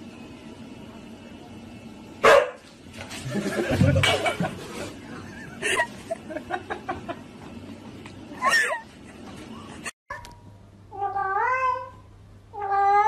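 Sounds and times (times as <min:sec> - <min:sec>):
dog barking: 0:02.2 - 0:02.6.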